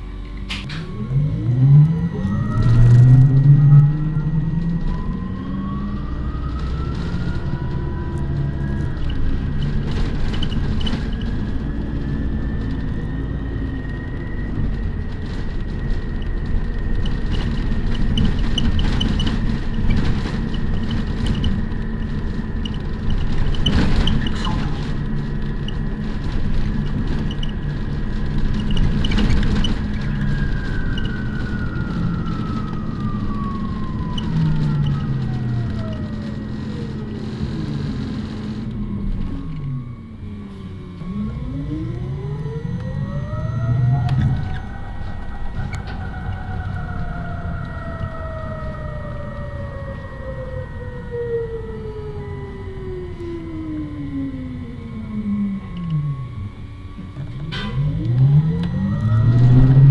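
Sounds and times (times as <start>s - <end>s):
bus drivetrain whine: 0.0s - 59.9s
engine and road rumble: 0.0s - 59.9s
knocks and rattles: 6.5s - 39.3s.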